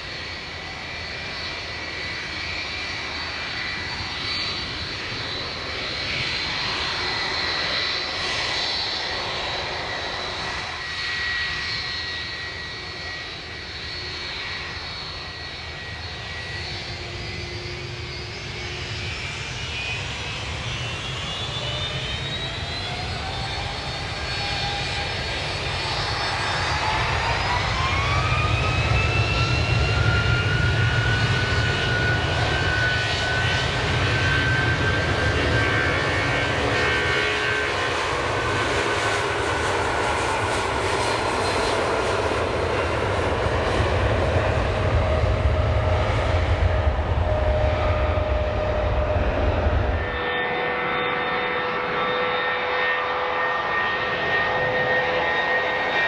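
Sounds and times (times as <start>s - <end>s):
jet engines spooling up: 0.0s - 56.0s.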